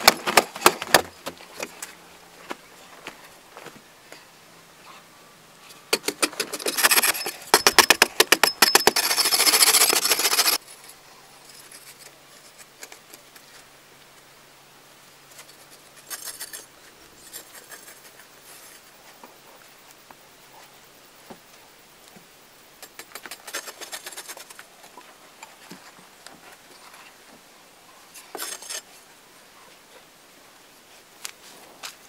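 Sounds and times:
hand tool striking packed earth: 0.0s - 1.4s, 5.9s - 10.6s.

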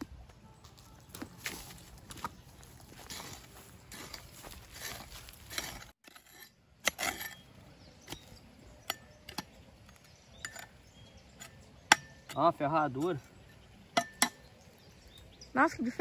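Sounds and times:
hoe scraping stony soil: 1.4s - 15.4s
hoe blade clinking on stones: 3.9s - 14.6s.

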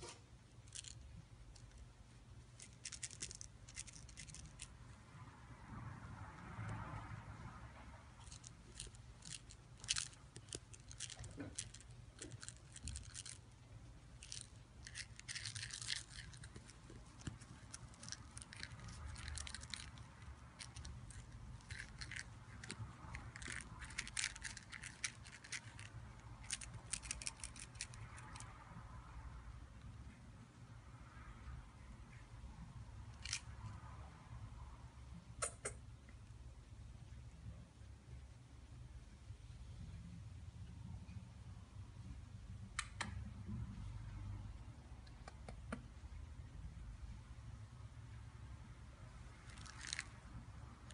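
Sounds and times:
kitten scratching on crinkly pad: 14.2s - 28.0s.

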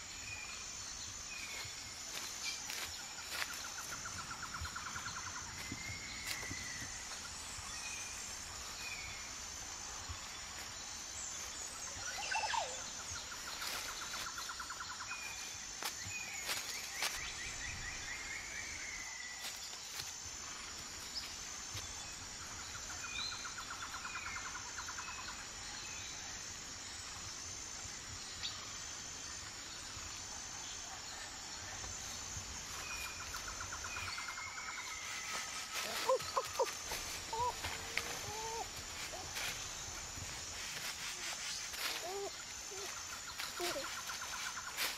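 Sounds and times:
high insect buzz: 32.2s - 44.9s.

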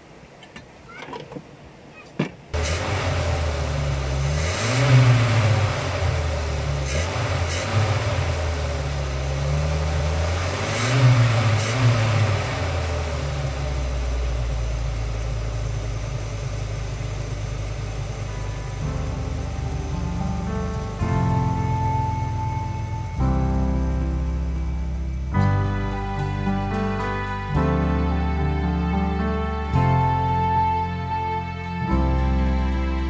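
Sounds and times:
engine revving: 2.6s - 28.5s.

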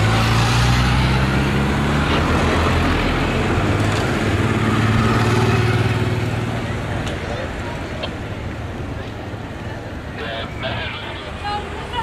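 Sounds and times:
road traffic noise: 0.0s - 12.0s.

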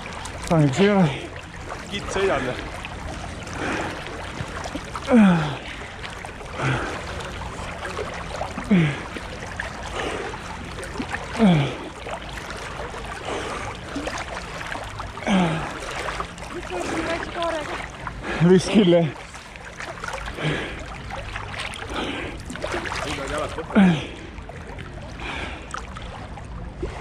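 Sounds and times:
water splashing from strokes: 0.0s - 27.0s
swimmer breathing hard: 2.4s - 14.2s, 15.2s - 16.2s, 18.0s - 18.6s, 20.2s - 23.1s, 25.1s - 25.9s.

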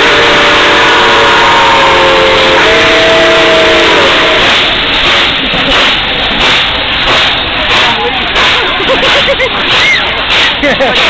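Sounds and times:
steam locomotive whistle: 0.0s - 5.2s
loud steam hiss: 0.0s - 11.0s.

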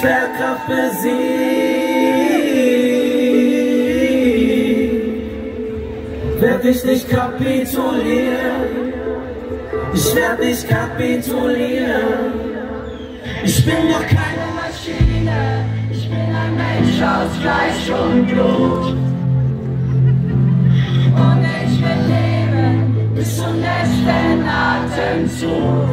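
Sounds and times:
live pop band playing: 13.2s - 18.8s.

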